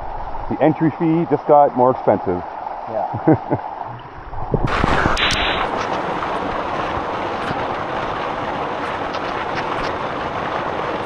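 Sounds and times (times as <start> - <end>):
waterfall rushing: 4.7 - 11.0.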